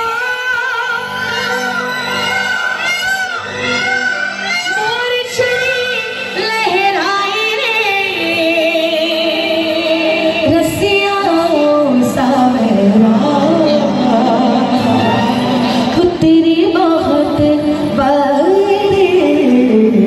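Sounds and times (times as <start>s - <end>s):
woman singing devotional song: 0.0s - 20.0s
instrumental accompaniment: 9.6s - 18.2s.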